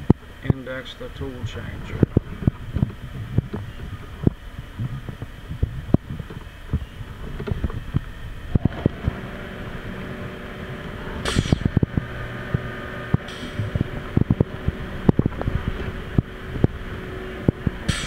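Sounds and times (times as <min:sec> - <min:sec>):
motor hum: 0:00.0 - 0:18.0
tool changer clicks and clunks: 0:10.8 - 0:16.8
short air hisses: 0:11.2 - 0:11.8.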